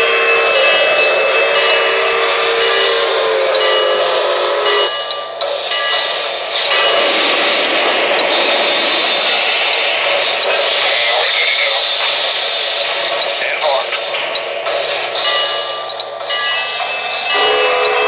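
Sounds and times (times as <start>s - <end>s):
chime steam whistle: 0.0s - 5.2s, 15.3s - 18.0s
steady hissing: 5.5s - 18.0s.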